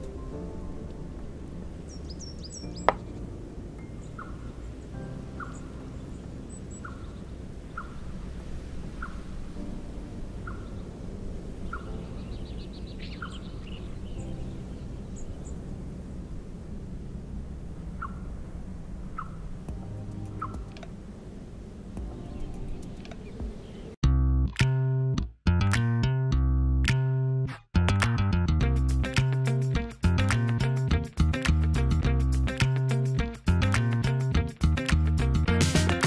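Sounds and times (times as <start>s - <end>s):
soft background music: 0.0s - 8.2s, 8.9s - 16.3s, 19.7s - 20.9s, 22.0s - 23.6s
bird chirping: 1.8s - 3.2s, 3.8s - 8.2s, 8.9s - 9.4s, 10.4s - 10.9s, 11.6s - 15.6s, 18.0s - 18.3s, 19.1s - 19.5s, 20.2s - 20.8s, 22.2s - 24.0s.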